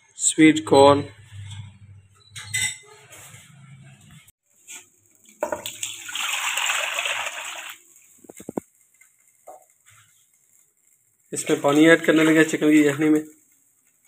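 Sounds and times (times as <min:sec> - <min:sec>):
liquid pouring into pot: 0:04.8 - 0:12.6.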